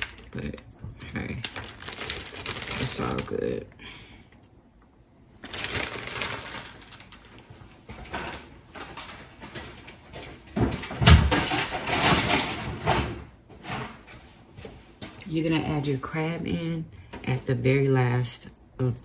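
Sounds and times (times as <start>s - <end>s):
plastic bag crinkling: 0.0s - 3.7s, 5.4s - 9.5s
kitchen handling clatter: 10.6s - 14.0s.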